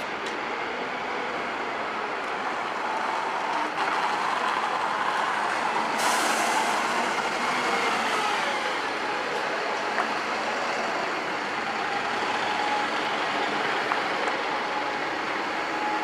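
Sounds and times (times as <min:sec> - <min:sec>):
bus engines running: 0:00.0 - 0:16.0
air brakes hissing: 0:05.9 - 0:07.2.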